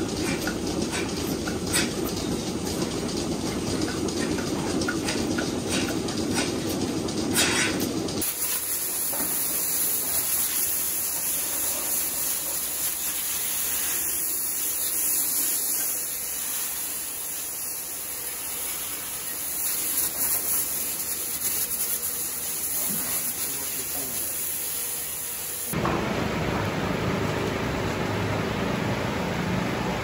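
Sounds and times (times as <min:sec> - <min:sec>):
hose nozzle spraying water: 0:08.2 - 0:25.8.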